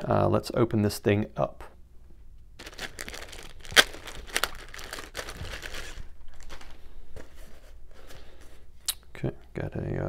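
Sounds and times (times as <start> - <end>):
plastic bag crinkling: 2.6 - 7.0.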